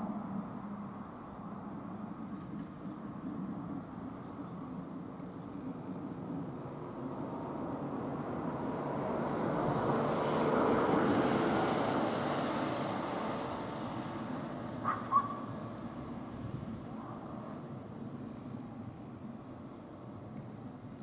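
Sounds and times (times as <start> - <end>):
vehicle passing by: 6.0 - 19.2.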